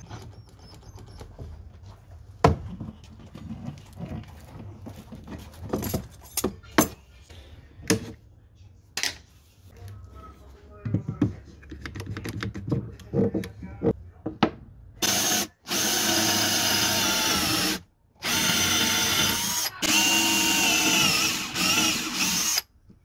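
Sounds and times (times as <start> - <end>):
cordless drill boring into plywood: 15.0 - 22.7.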